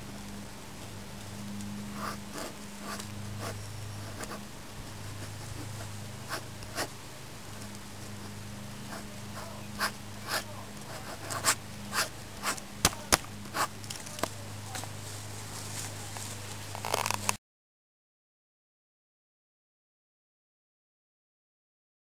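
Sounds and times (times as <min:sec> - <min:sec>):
steady low hum: 0:00.0 - 0:17.4
pen scribbling on paper: 0:02.0 - 0:06.9, 0:08.2 - 0:13.8.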